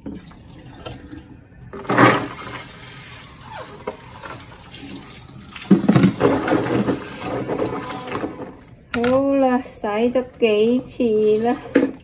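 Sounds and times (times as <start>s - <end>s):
water splashing in a sink: 0.0s - 8.8s, 9.9s - 12.0s.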